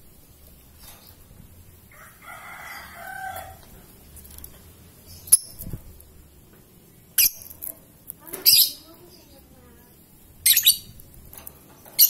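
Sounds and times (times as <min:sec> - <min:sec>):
lovebird chirps: 0:05.0 - 0:05.8, 0:07.1 - 0:07.7, 0:08.4 - 0:09.4, 0:10.4 - 0:11.0.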